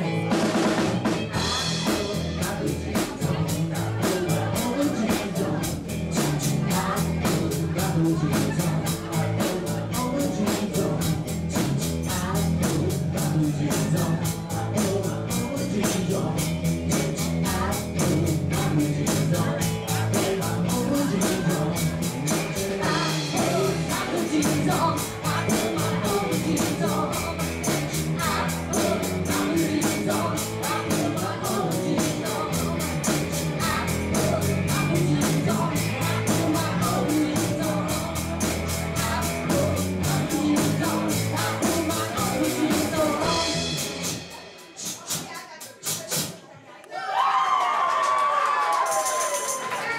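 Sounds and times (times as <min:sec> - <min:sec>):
electric guitar: 0:00.0 - 0:44.6
person singing: 0:00.0 - 0:46.3
steady drum beat: 0:00.0 - 0:46.4.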